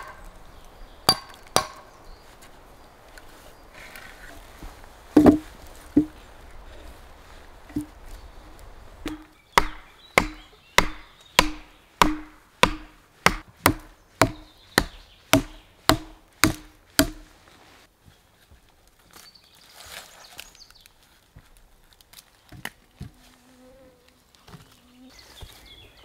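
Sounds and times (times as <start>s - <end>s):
hatchet striking wooden stake: 0.0s - 0.3s, 1.0s - 1.9s, 5.2s - 6.2s, 9.0s - 17.3s.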